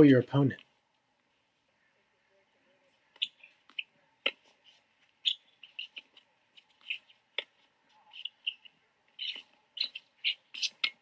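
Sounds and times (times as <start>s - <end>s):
shoe squeaks on court: 5.2s - 7.2s, 8.1s - 11.0s.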